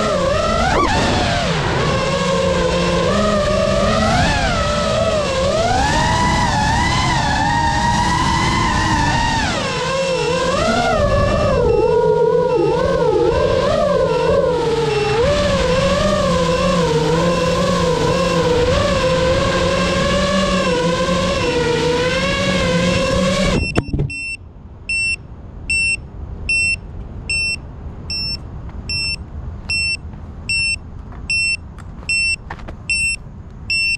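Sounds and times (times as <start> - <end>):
drone motors whining: 0.0 - 24.4
buzzer beeping: 23.6 - 33.9.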